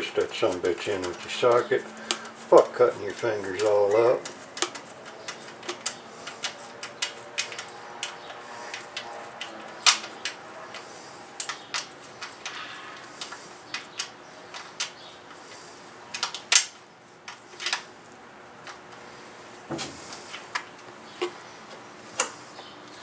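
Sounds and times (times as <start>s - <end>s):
socket and bolt clicking and tapping: 4.2s - 10.8s.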